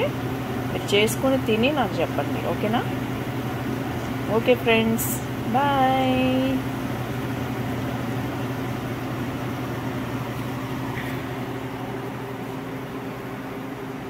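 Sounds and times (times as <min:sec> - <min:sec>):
exhaust fan whirring: 0:00.0 - 0:14.0.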